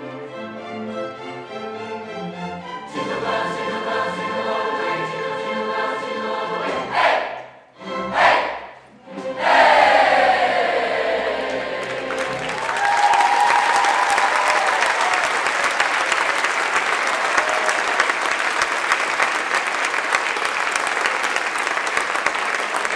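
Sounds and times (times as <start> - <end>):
choir and orchestra final chord: 8.0 - 12.9
audience applauding: 11.2 - 22.9.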